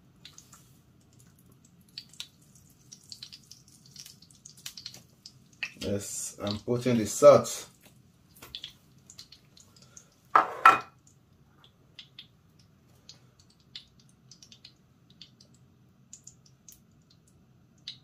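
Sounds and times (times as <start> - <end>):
china plate clinking on counter: 10.4 - 10.9.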